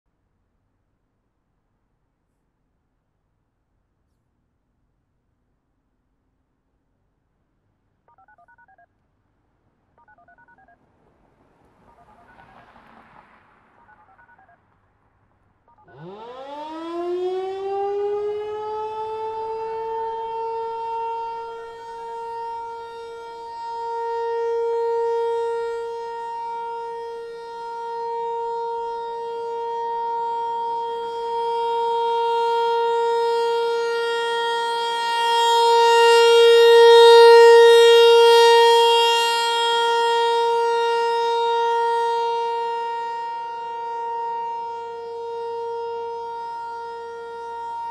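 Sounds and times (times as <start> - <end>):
warning siren steady alert tone: 13.8 - 14.6, 15.7 - 47.9
fainter second siren tone: 15.7 - 47.9.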